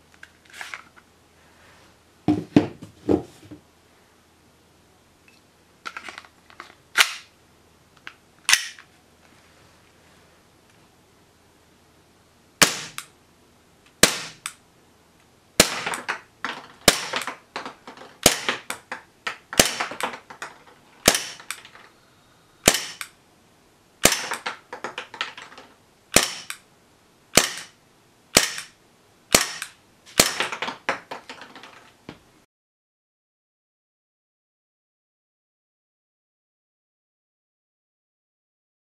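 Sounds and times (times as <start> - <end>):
pistol slide clacking: 7.0 - 7.3, 8.5 - 8.8
airsoft pistol shots: 12.6 - 13.1, 14.0 - 14.6, 15.6 - 16.1, 16.8 - 17.3, 18.2 - 18.7, 19.5 - 20.0, 21.0 - 21.6, 22.6 - 23.1, 24.0 - 24.4, 26.1 - 26.6, 27.3 - 30.6.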